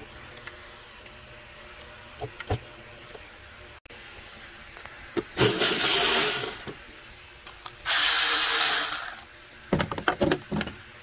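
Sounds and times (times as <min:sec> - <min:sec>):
cordless electric ratchet running: 0:05.4 - 0:06.7, 0:07.8 - 0:09.2.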